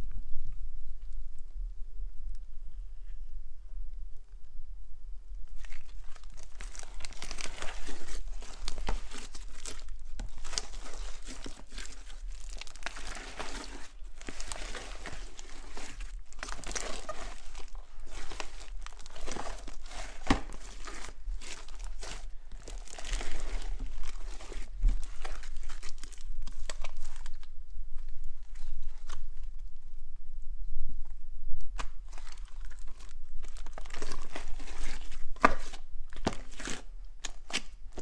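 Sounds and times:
slime crackling and crunching: 0:05.5 - 0:27.5, 0:31.8 - 0:38.0.

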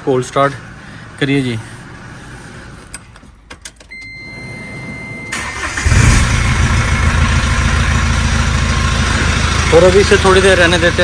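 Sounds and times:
high beep: 0:03.9 - 0:05.4
engine cranking: 0:05.3 - 0:08.0
car engine idling: 0:05.3 - 0:11.0.

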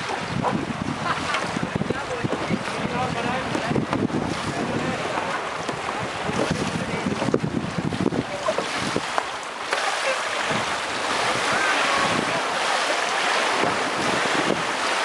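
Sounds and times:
paddles splashing through water: 0:00.0 - 0:15.0
wind on microphone: 0:00.0 - 0:15.0.

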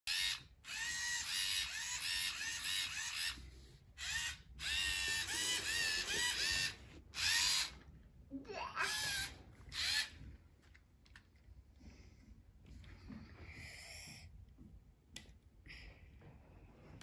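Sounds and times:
robot servo motors whining: 0:00.1 - 0:03.4, 0:04.0 - 0:07.7, 0:08.9 - 0:10.1.

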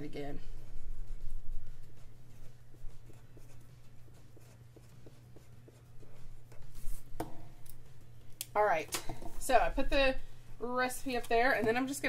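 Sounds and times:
pen scratching on paper: 0:00.1 - 0:07.1.

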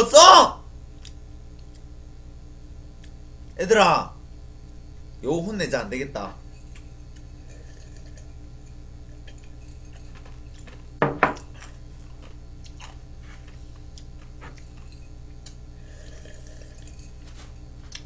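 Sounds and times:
steady low hum: 0:00.0 - 0:18.0
mug knocking on table: 0:11.0 - 0:11.4.

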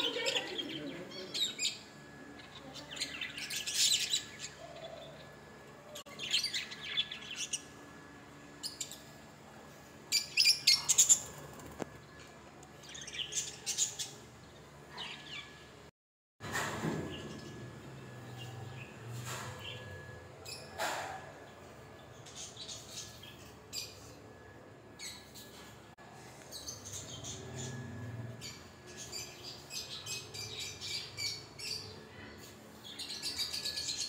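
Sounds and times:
caged birds chirping: 0:00.0 - 0:15.9, 0:17.0 - 0:34.0
low background hum: 0:00.0 - 0:34.0.

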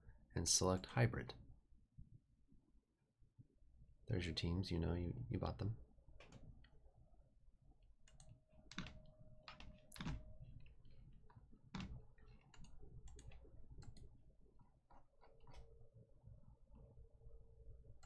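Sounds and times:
low room hum: 0:00.0 - 0:18.0
faint clicks and light taps: 0:06.2 - 0:06.8, 0:08.0 - 0:16.9.

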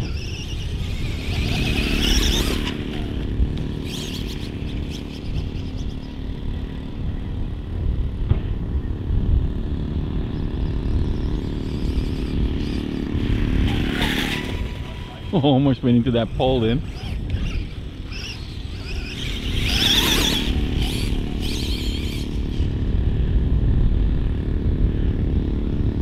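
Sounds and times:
electric motor whining: 0:00.0 - 0:06.1, 0:10.8 - 0:23.0
wind noise on microphone: 0:00.0 - 0:26.0.

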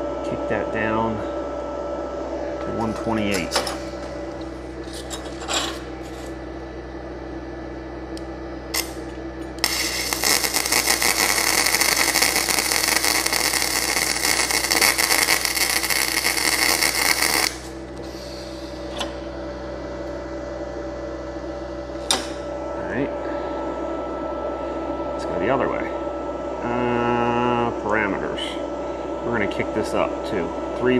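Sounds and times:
steady hum: 0:00.0 - 0:30.9
welding arc crackling: 0:08.7 - 0:18.2.

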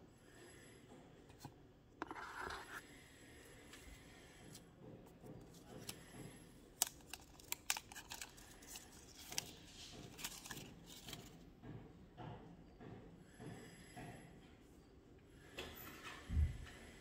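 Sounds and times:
plastic wrap crackling and tearing: 0:06.8 - 0:11.2.

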